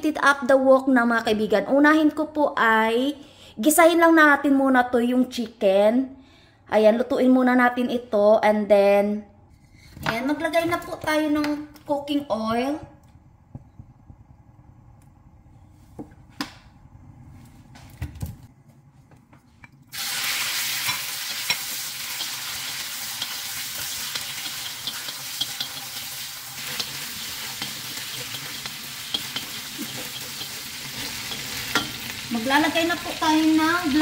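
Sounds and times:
chicken sizzling in hot oil: 0:19.9 - 0:34.0.

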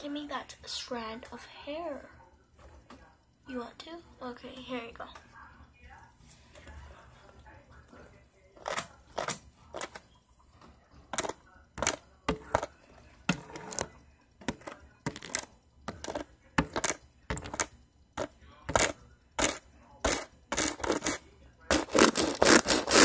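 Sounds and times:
hairbrush bristles scratching microphone: 0:18.8 - 0:23.0.

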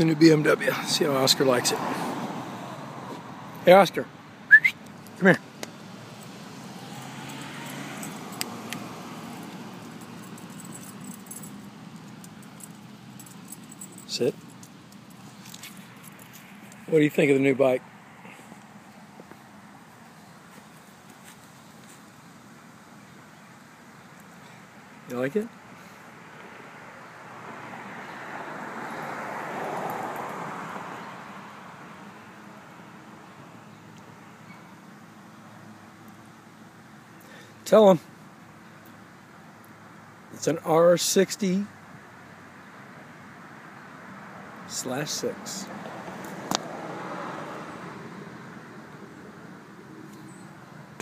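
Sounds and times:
traffic hum: 0:00.0 - 0:51.0
vehicle passing by: 0:00.4 - 0:04.0, 0:05.2 - 0:19.8, 0:25.8 - 0:32.2, 0:44.0 - 0:50.4.

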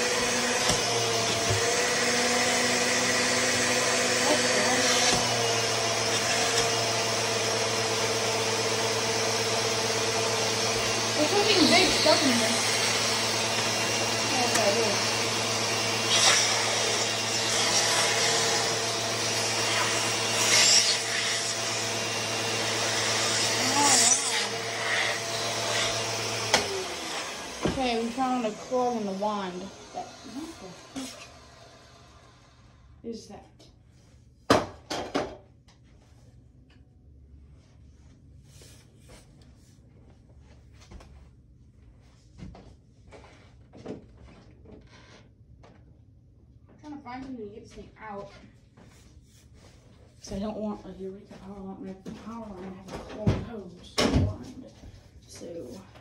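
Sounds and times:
vacuum cleaner running: 0:00.0 - 0:33.1, 0:48.9 - 0:56.0.

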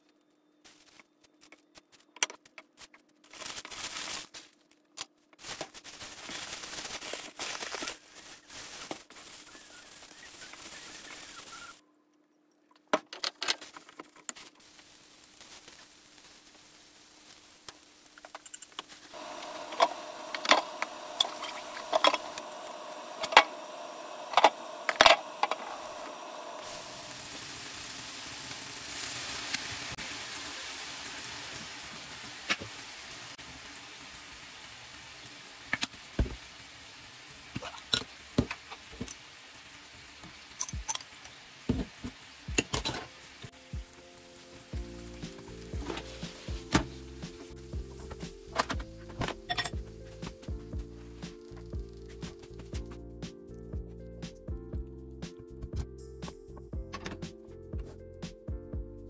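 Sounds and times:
chicken sizzling in a frying pan: 0:05.4 - 0:11.8, 0:14.4 - 0:52.8.

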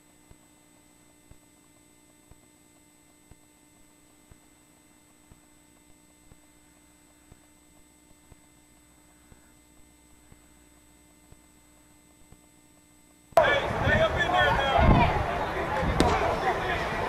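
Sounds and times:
soft ticks: 0:00.0 - 0:13.4
faint electrical hum: 0:00.0 - 0:17.0.

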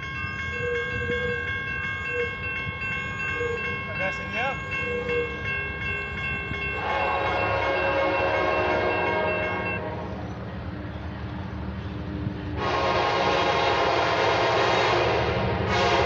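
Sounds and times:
train rumbling: 0:00.0 - 0:16.0
train air horn blasts: 0:06.8 - 0:10.2, 0:12.6 - 0:16.0.

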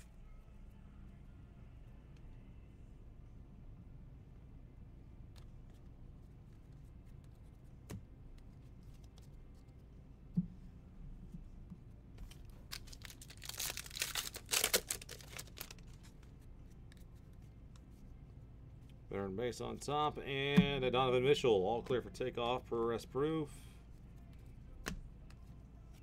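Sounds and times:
wrapper crinkling: 0:12.4 - 0:16.1.

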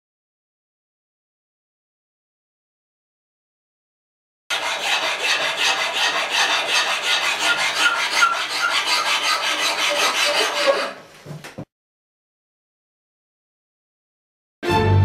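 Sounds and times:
hand tool scraping wood: 0:04.5 - 0:11.1.

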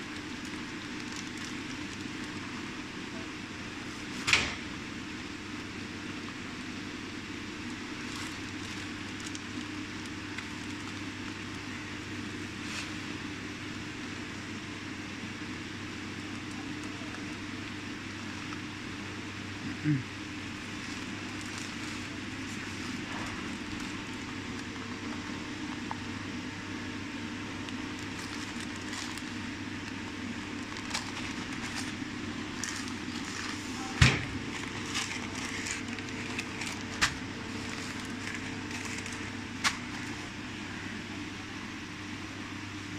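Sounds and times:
motor hum: 0:00.0 - 0:42.9
clicks and knocks of bags handled: 0:27.9 - 0:40.3.

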